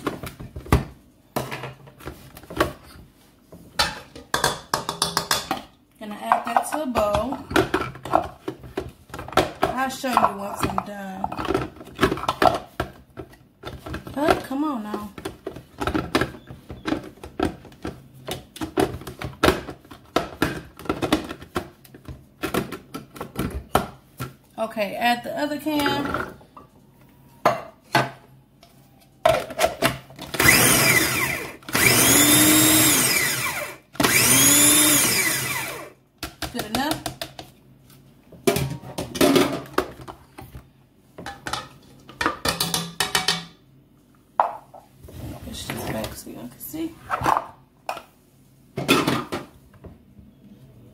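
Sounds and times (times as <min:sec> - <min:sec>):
plastic bowl clattering: 0:06.4 - 0:24.4.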